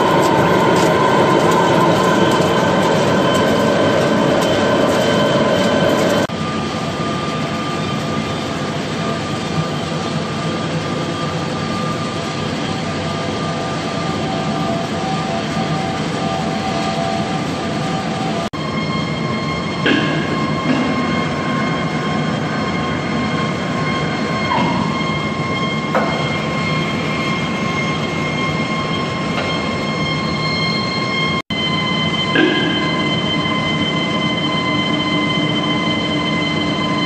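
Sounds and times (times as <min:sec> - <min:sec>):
crackle of metal chips cutting: 0:00.0 - 0:06.3
faint lathe whine: 0:00.0 - 0:37.0
lathe drone: 0:00.0 - 0:37.0.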